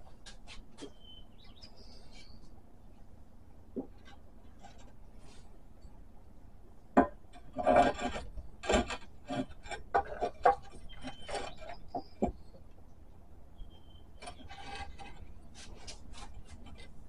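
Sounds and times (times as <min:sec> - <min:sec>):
wooden board scraping on metal: 0:07.0 - 0:12.4, 0:14.2 - 0:17.0.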